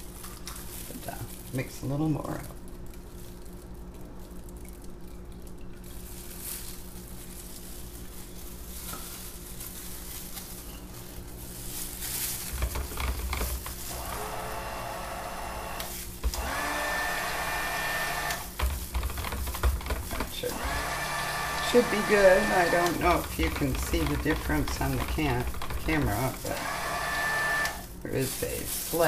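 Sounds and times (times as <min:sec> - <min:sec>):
stick blender whirring: 0:12.5 - 0:29.0.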